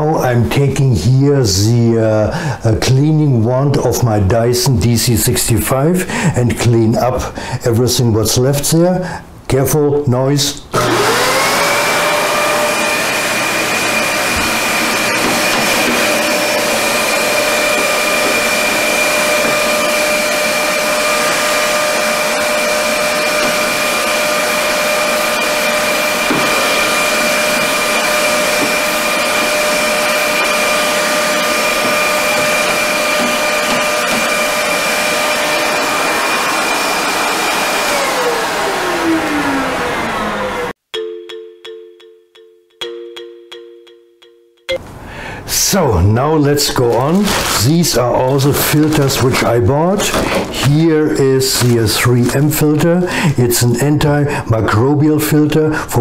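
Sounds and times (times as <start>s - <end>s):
vacuum cleaner running: 10.7s - 40.8s, 46.6s - 53.4s.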